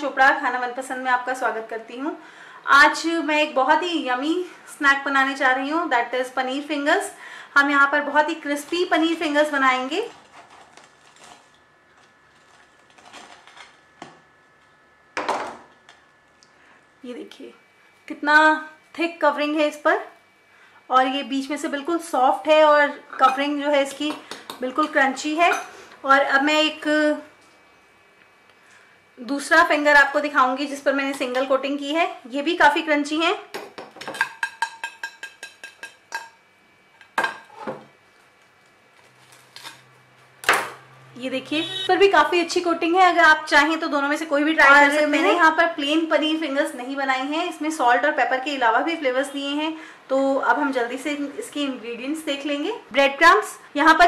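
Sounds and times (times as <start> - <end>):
knife crunching through crust: 10.1 - 14.0, 38.9 - 39.9.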